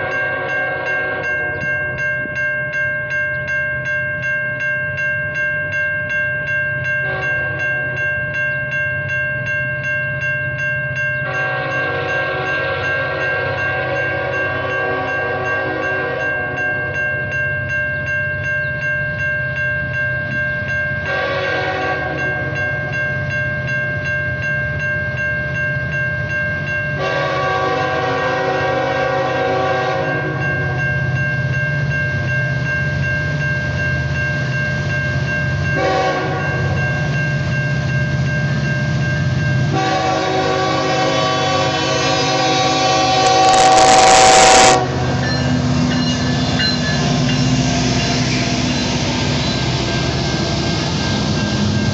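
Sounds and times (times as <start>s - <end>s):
locomotive horn blasts: 0.0s - 1.5s, 7.0s - 7.5s, 11.3s - 16.4s, 21.1s - 22.5s, 27.0s - 30.8s, 35.8s - 36.8s, 39.7s - 45.7s
railroad crossing bells ringing: 0.0s - 51.9s
low locomotive rumble: 26.3s - 51.9s.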